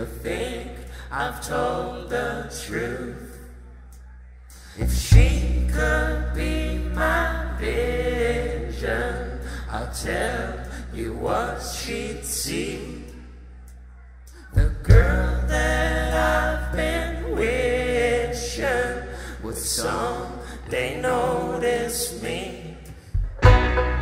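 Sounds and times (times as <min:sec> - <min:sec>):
men singing together: 0:00.0 - 0:03.4, 0:04.8 - 0:13.4, 0:14.4 - 0:23.0
electric bass: 0:04.6 - 0:11.2, 0:14.4 - 0:18.3, 0:23.2 - 0:24.0
guitar: 0:04.8 - 0:08.5, 0:23.1 - 0:24.0.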